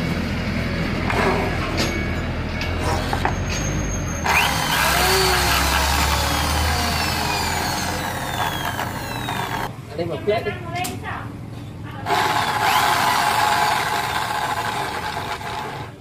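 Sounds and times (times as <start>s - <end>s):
electric drill motor whine: 4.2s - 9.7s, 12.0s - 15.9s.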